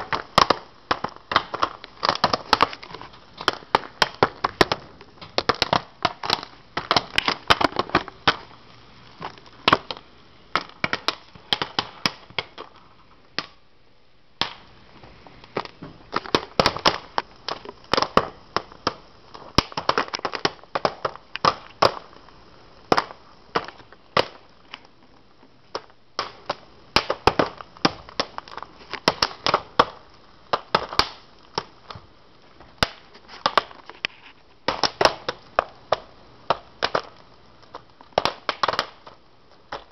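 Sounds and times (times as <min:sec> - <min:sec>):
popcorn kernels popping: 0:00.0 - 0:13.7, 0:14.4 - 0:39.9.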